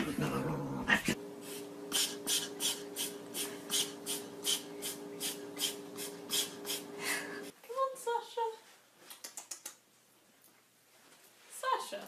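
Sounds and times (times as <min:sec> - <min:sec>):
steady low hum: 0:00.0 - 0:07.6.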